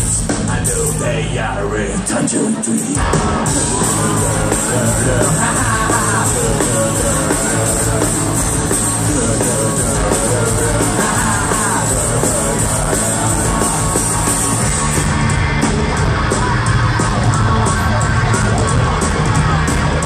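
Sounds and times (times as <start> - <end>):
live rock band playing: 0.0 - 20.0.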